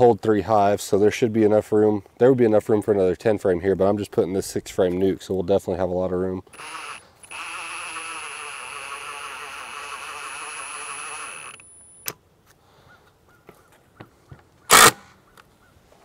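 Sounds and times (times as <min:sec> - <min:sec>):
impact driver hammering screw: 0:06.5 - 0:11.7
small clicks: 0:06.5 - 0:12.2.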